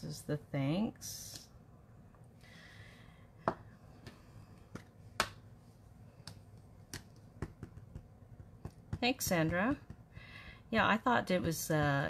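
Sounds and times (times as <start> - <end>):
stamping supplies clicking and tapping: 6.3 - 10.1.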